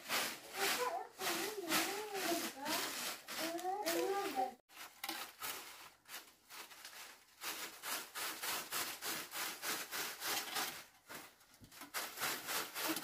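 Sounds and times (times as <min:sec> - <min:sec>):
hand saw cutting wood: 0:07.4 - 0:10.9, 0:11.9 - 0:13.0.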